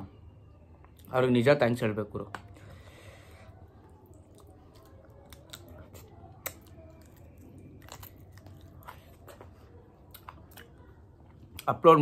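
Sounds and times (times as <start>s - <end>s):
man chewing food: 2.4s - 11.7s
mouth clicks and smacks: 4.0s - 11.7s.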